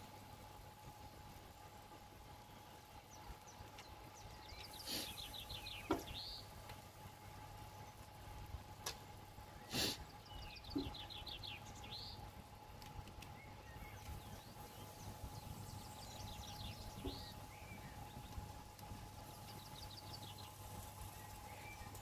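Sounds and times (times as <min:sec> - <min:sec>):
steady hum: 0:00.0 - 0:22.0
bird chirps and trills: 0:01.0 - 0:08.1, 0:09.4 - 0:12.5, 0:13.2 - 0:22.0.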